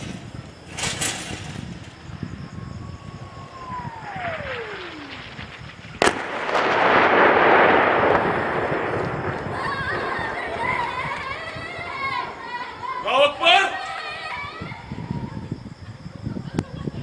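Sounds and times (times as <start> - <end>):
shell explosion blast: 0.0 - 12.9
incoming shell whistling: 0.0 - 14.9
loud noise: 2.8 - 15.1.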